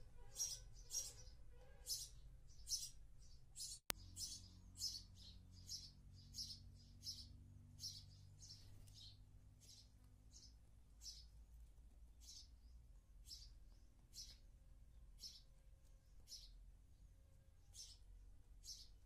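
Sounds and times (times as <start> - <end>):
sparrow chirping: 0.0 - 19.0.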